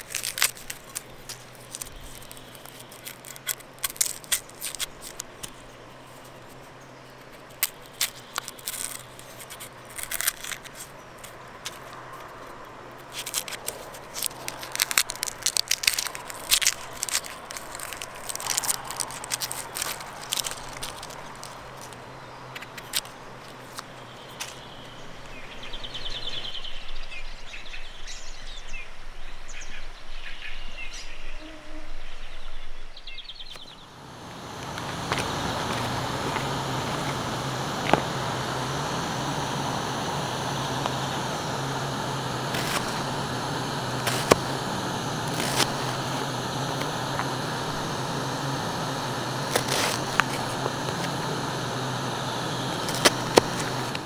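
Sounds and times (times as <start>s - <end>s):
gas burner hissing: 13.0s - 24.9s, 33.8s - 54.0s
birds chirping: 14.3s - 31.5s, 32.1s - 54.0s.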